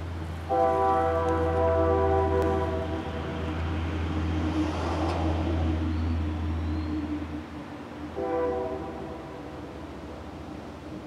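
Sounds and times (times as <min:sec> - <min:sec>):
train rumbling past: 0:00.0 - 0:11.0
train horn: 0:00.4 - 0:04.9, 0:08.0 - 0:09.9.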